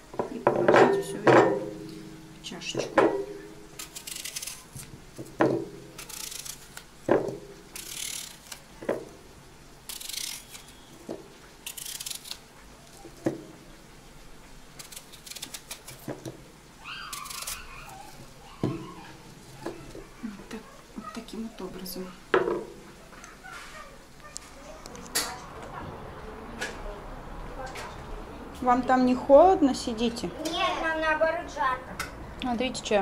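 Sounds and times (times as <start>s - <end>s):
knife crunching through apple: 3.8s - 4.9s, 5.9s - 6.9s.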